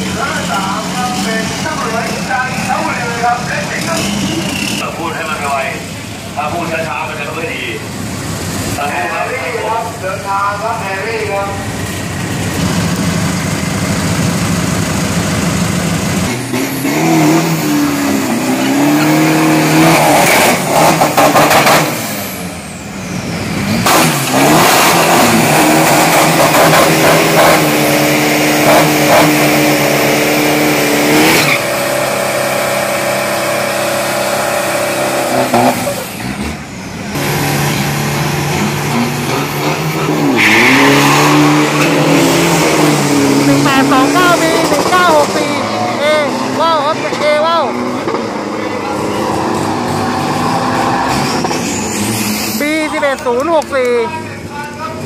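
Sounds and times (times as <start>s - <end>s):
tyres squealing on pavement: 0.0s - 13.4s, 30.6s - 37.1s, 38.5s - 55.0s
truck engine revving: 0.0s - 55.0s.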